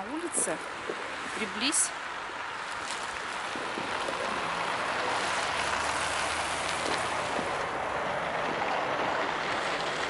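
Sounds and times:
tyres on snowy road: 0.0 - 10.0
low engine hum: 2.1 - 10.0.

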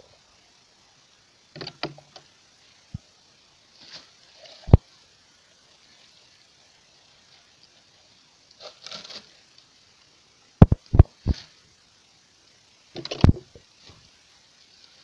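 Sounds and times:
bushes rustling: 1.6 - 9.8.

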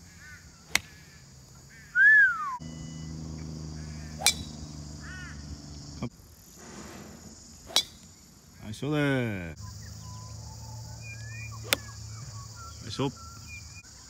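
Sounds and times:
short bird calls: 0.0 - 8.3, 9.6 - 14.0
high drone of insects: 0.0 - 14.0
golf club striking ball: 0.7 - 1.0, 3.8 - 5.9, 6.6 - 8.2, 11.6 - 11.9
falling whistled call: 1.7 - 3.2, 9.6 - 13.8.

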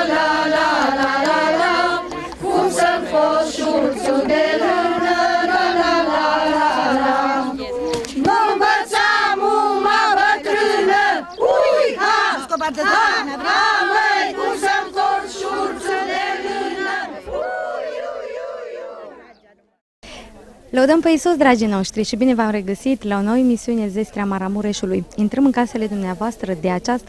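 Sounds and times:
women singing unaccompanied: 0.0 - 19.4.

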